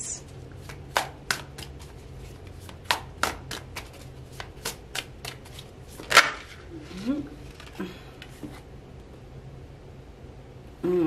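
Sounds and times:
cards being shuffled: 0.6 - 8.6.

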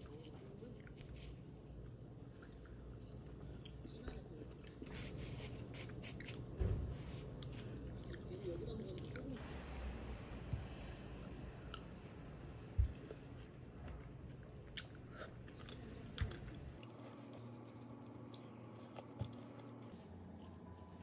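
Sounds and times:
person chewing and crunching: 7.4 - 9.3, 14.2 - 19.8.

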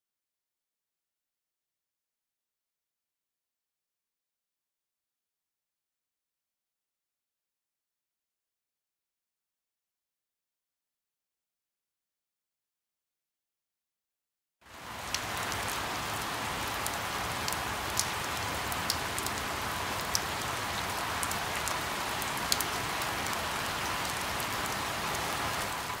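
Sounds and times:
steady rain: 14.6 - 26.0.

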